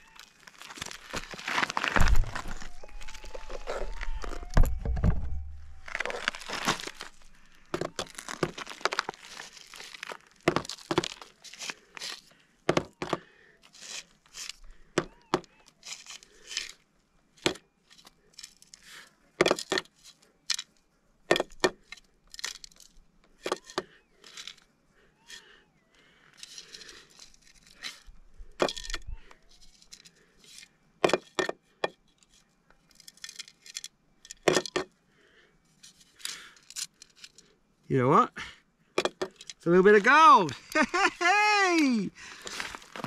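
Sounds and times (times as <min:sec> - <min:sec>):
stony dirt scraped by hand: 0:05.7 - 0:12.3, 0:13.7 - 0:14.6.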